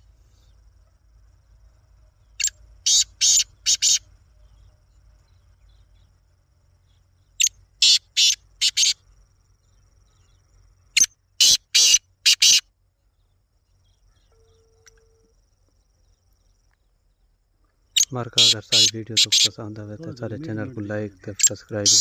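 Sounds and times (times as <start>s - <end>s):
francolin harsh calls: 2.1s - 6.2s, 6.8s - 12.7s, 17.8s - 22.0s
faint high trill: 14.2s - 15.4s.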